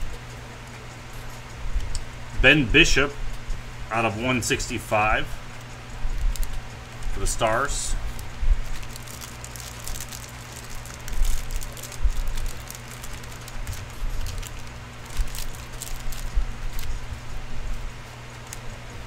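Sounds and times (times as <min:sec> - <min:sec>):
low electrical hum: 0:00.0 - 0:19.0
handling clicks and crackles: 0:05.5 - 0:17.0, 0:17.7 - 0:19.0.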